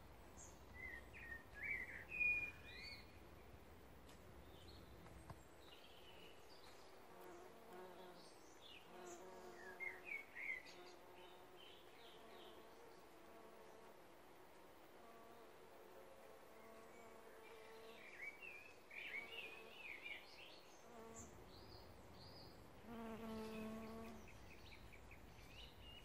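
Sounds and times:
small birds chirping: 0.4 - 3.5, 4.4 - 13.8, 16.6 - 26.0
bumblebees buzzing: 22.8 - 24.3.

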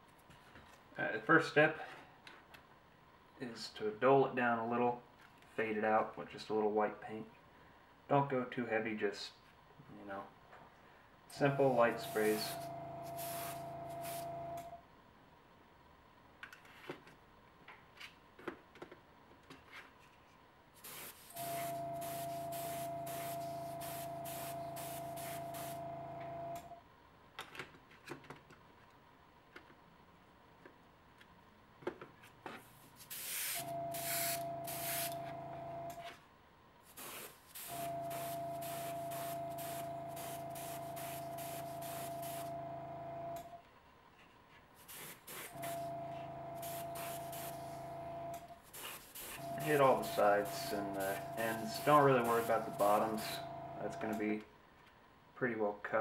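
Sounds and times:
air compressor motor humming: 11.4 - 14.8, 21.3 - 26.8, 33.2 - 36.0, 37.0 - 43.6, 44.9 - 54.3
airbrush spraying hiss: 11.7 - 14.3, 20.8 - 25.8, 33.0 - 35.2, 36.9 - 42.5, 44.8 - 45.8, 46.6 - 47.8, 48.7 - 53.2.

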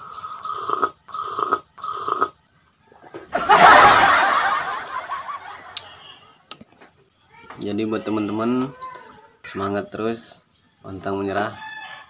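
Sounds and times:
man slurping coffee: 0.0 - 2.4.

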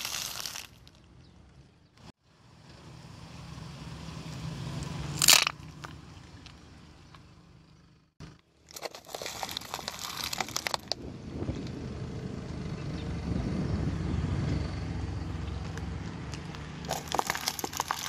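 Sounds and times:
plastic cups crackling under tyre: 0.0 - 1.2, 5.2 - 7.2, 8.3 - 11.0, 15.6 - 18.0.

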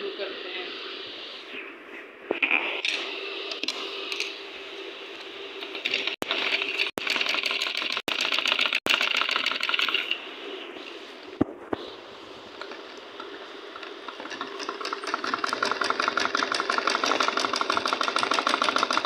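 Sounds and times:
scattered clicks and knocks: 5.8 - 10.2, 12.6 - 19.0
sewing machine stitching: 5.8 - 10.2, 14.1 - 19.0.

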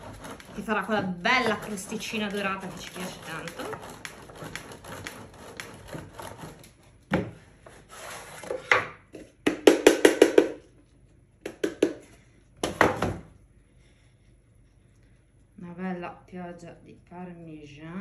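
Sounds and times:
cheese scraped on grater: 0.0 - 6.7.

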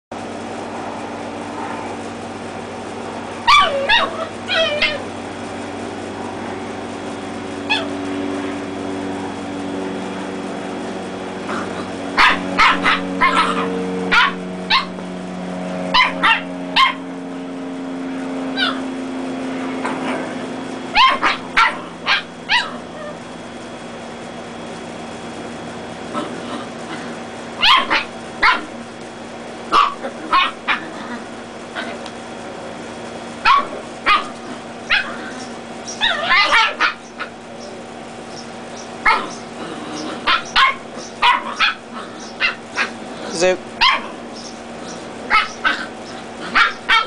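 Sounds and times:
puppies yipping and barking: 3.4 - 5.2, 7.5 - 8.0, 11.4 - 15.1, 15.8 - 17.1, 18.4 - 19.0, 19.8 - 23.3, 26.1 - 28.8, 29.7 - 32.2, 33.3 - 47.0.

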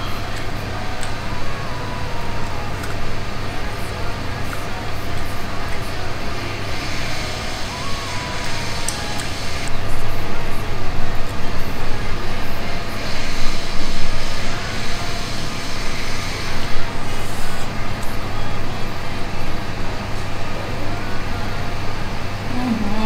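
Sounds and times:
constant low hum: 0.0 - 23.0
loud steady background noise: 0.0 - 23.0.

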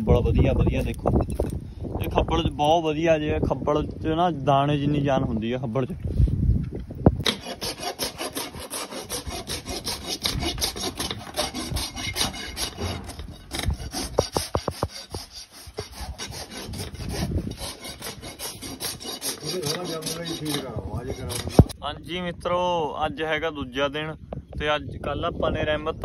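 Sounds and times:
rasp scraping a hoof: 7.2 - 21.8.

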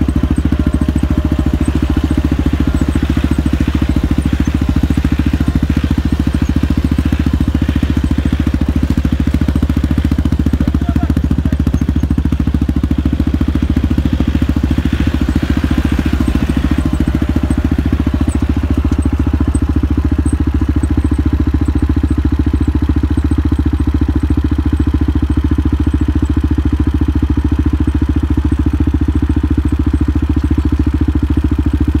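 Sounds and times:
vehicle engine running: 0.0 - 32.0.

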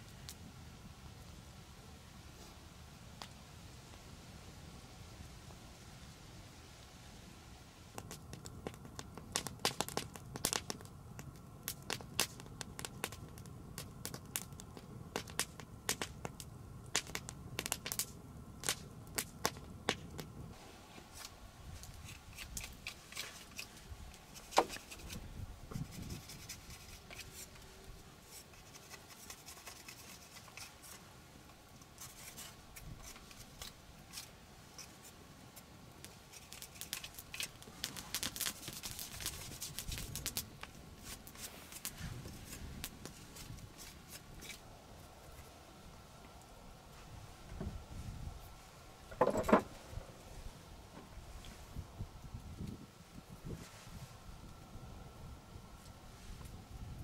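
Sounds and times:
knife shaving wooden stick: 21.1 - 31.0, 31.8 - 44.6.

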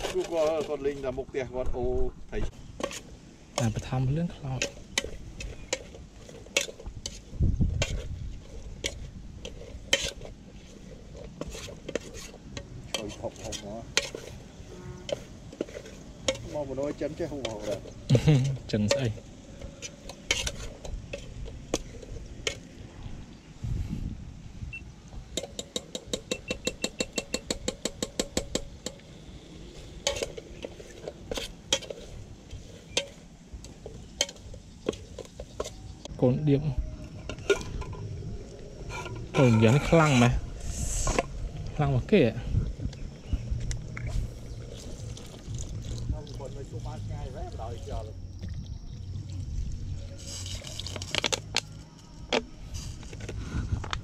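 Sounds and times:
low rumble: 36.8 - 54.0.

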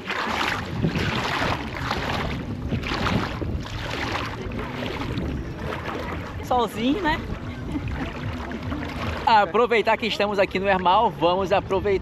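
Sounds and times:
wind on microphone: 0.0 - 9.3
water splashing on shore: 0.0 - 11.6.

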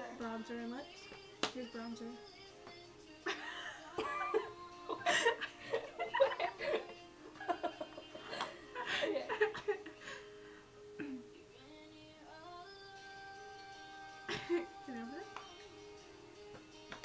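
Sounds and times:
background music: 0.0 - 17.0
women laughing: 3.3 - 10.0.

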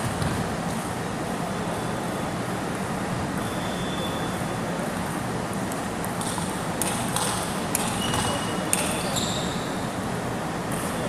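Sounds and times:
indoor hall background noise: 0.0 - 11.0
table tennis balls clicking: 6.0 - 9.0.

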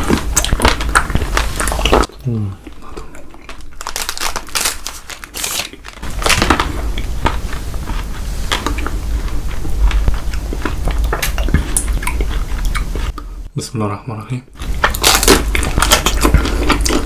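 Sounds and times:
chewing and crunching chocolate bars: 0.0 - 13.2, 14.6 - 17.0
low rumble: 6.0 - 13.5.

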